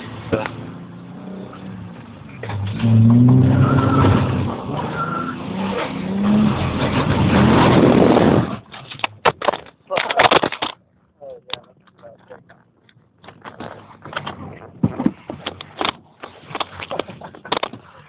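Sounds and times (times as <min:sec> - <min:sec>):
car engine revving: 0:00.0 - 0:08.7
tyre and road noise on wet tarmac: 0:00.0 - 0:18.0.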